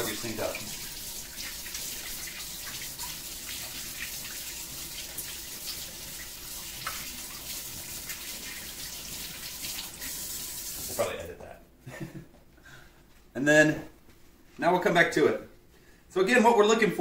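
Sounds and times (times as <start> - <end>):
faucet running into metal sink: 0.0 - 11.1.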